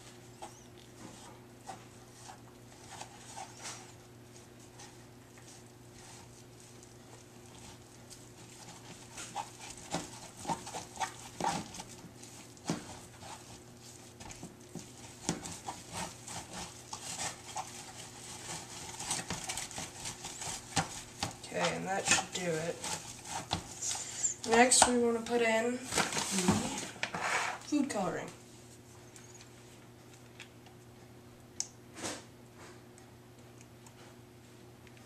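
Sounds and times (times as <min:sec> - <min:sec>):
spatula scraping paste in plastic tub: 0:07.6 - 0:25.0.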